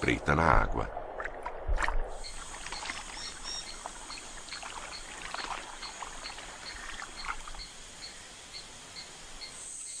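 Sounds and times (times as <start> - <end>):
water splashing and dripping: 0.0 - 8.0
high insect chirp: 2.1 - 10.0.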